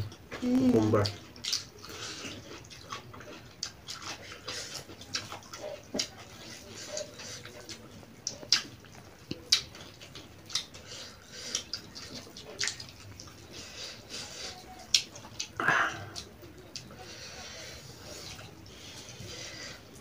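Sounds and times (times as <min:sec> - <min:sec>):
chewing and mouth smacks: 0:01.0 - 0:17.0.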